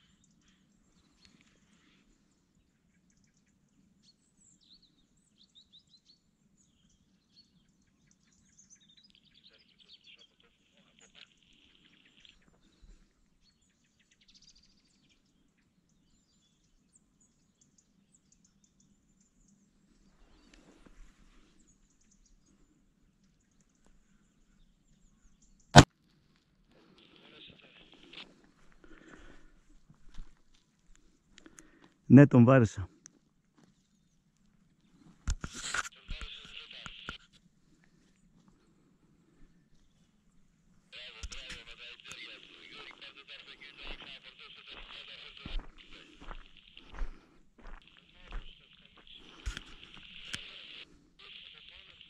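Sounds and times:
faint bird chirps: 0:00.0 - 0:25.8, 0:39.4 - 0:52.0.

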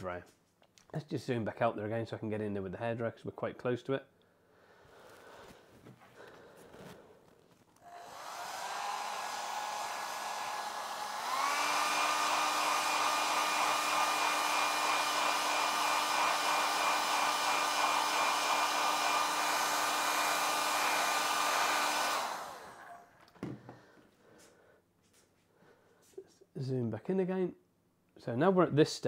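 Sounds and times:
hair dryer blowing: 0:07.8 - 0:23.6.

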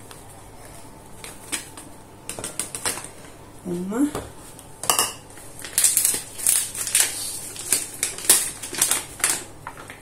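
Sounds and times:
paper bag rustling: 0:05.3 - 0:10.0.

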